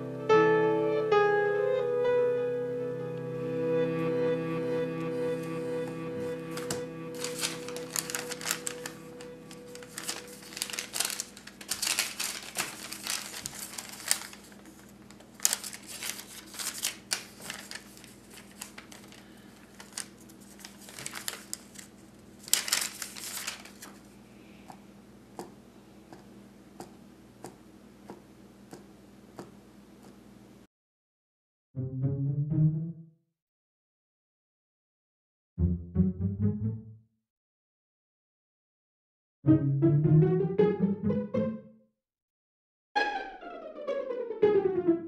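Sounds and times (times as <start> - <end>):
paper rustling and crinkling: 6.5 - 24.1.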